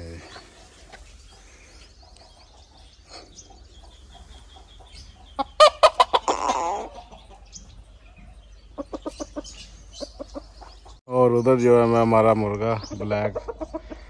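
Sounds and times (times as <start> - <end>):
rooster clucking: 2.2 - 11.0, 13.1 - 14.0.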